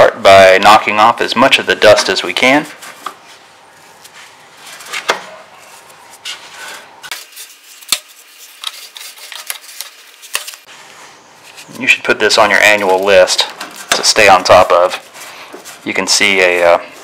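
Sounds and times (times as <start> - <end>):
toothbrush scratching metal coil: 7.1 - 10.6.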